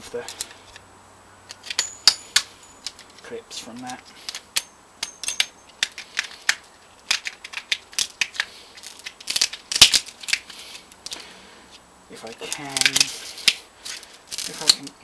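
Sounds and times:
screwdriver prying and scraping: 0:01.5 - 0:03.2, 0:04.2 - 0:11.1.

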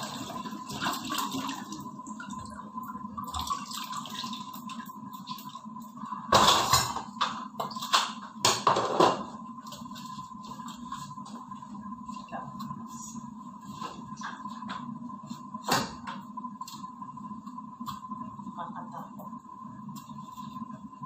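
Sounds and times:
water running into sink: 0:00.0 - 0:05.6.

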